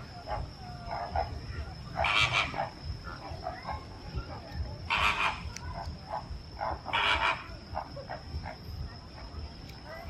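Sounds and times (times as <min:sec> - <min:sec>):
flamingos honking: 0:00.0 - 0:04.0, 0:04.8 - 0:08.6
soft short flamingo calls: 0:02.0 - 0:02.7, 0:04.9 - 0:05.5, 0:06.9 - 0:07.5.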